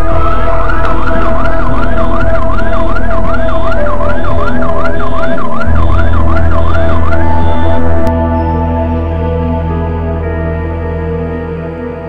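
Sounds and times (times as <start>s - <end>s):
siren yelping: 0.0s - 8.1s.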